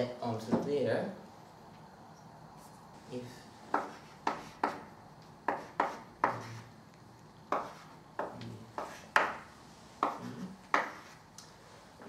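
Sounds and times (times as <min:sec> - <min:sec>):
chalk tapping and scratching on chalkboard: 0:03.7 - 0:06.8, 0:07.5 - 0:11.3.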